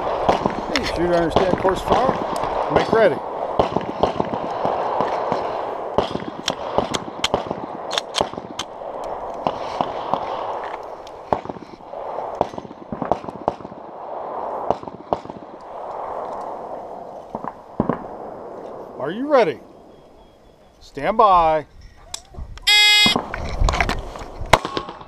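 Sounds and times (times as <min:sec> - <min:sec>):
distant pistol shots: 0:00.0 - 0:08.7, 0:14.6 - 0:15.6
wind noise on microphone: 0:21.3 - 0:25.0.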